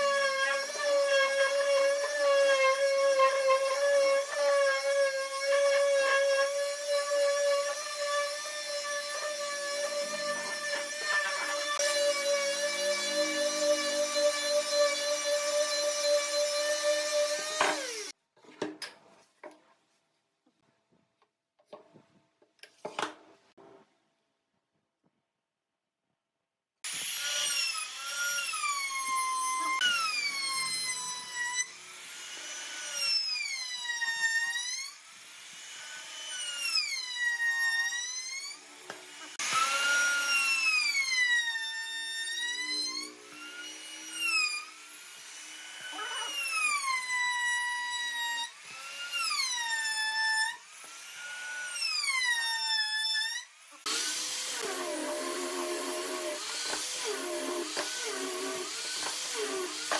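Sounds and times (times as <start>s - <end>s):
rotary sander humming: 0.0s - 18.1s
router whining cutting wood: 0.0s - 18.2s, 26.9s - 59.9s.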